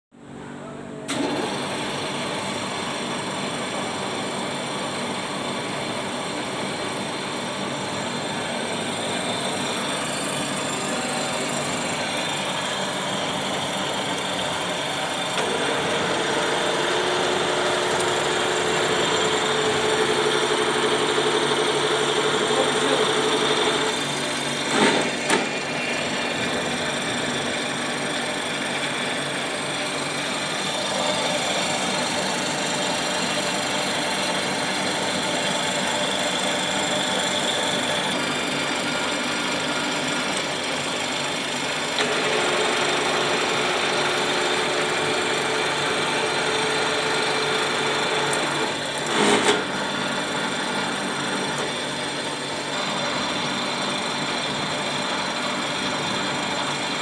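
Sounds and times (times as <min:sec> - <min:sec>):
boring machine whirring: 0:01.0 - 0:57.0
short mechanical clunks: 0:24.7 - 0:25.6.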